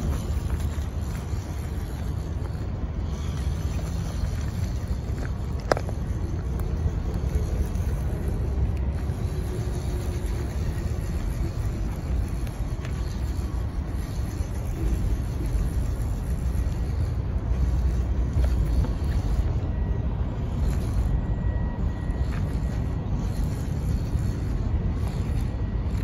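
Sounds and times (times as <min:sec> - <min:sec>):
faint motor whine: 0:00.0 - 0:26.0
toy car rumbling: 0:00.0 - 0:26.0
tyres crunching over gravel: 0:00.0 - 0:26.0.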